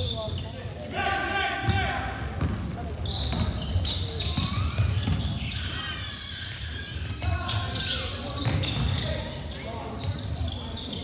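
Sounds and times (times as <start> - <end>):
chatter of spectators: 0.0 - 11.0.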